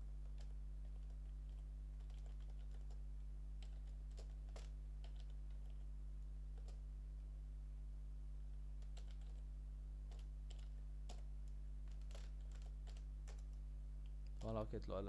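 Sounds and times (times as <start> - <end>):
steady low hum: 0.0 - 15.0
keyboard typing: 0.2 - 3.0, 3.6 - 5.9, 6.5 - 6.8, 8.8 - 14.6.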